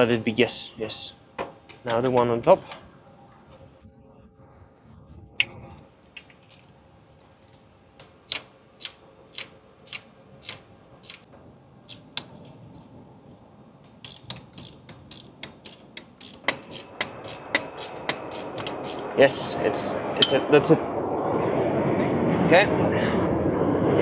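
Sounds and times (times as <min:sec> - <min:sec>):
ratchet wrench clicking: 0:08.3 - 0:11.2, 0:14.0 - 0:19.0.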